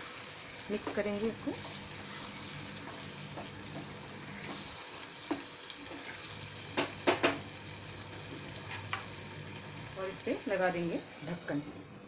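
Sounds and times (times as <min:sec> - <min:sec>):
gravy sizzling in a pan: 0:00.0 - 0:12.0
spatula scraping a pan: 0:01.6 - 0:06.2.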